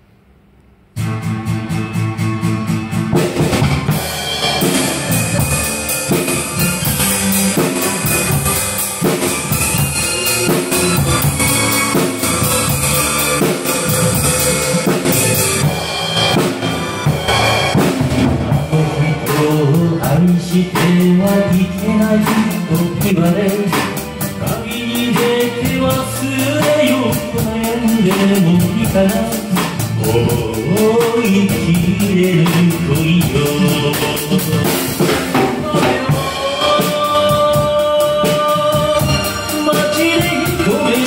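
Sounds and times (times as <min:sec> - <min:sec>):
karaoke backing track: 0:00.9 - 0:41.0
live drum kit playing: 0:00.9 - 0:41.0.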